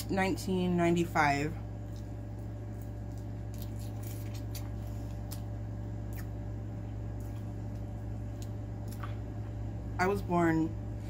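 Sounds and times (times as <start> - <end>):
steady low hum: 0.0 - 11.0
person chewing wetly: 1.8 - 9.5.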